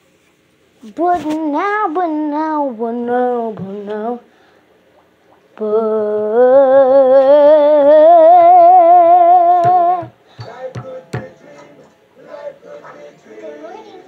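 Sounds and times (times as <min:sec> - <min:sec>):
boy humming with vibrato: 0:05.8 - 0:10.1
sharp knocks: 0:09.6 - 0:11.4.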